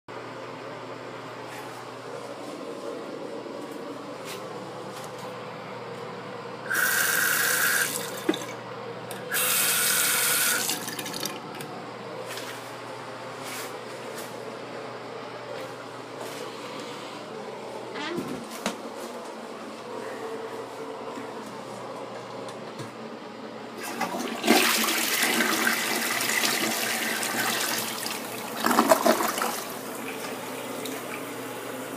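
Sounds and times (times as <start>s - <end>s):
toilet flushing water rush: 6.6s - 8.6s, 9.3s - 11.6s, 23.7s - 31.9s.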